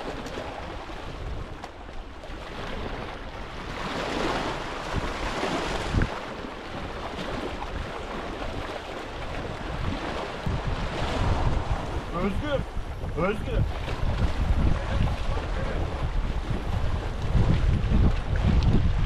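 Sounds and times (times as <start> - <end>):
water lapping at shore: 0.0 - 19.0
wind buffeting microphone: 0.0 - 19.0.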